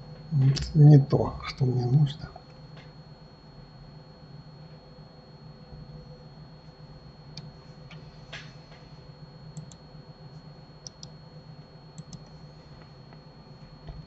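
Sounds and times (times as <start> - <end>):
steady low hum: 0.0 - 14.0
computer mouse clicks: 9.6 - 9.8, 10.8 - 11.2, 12.0 - 12.4.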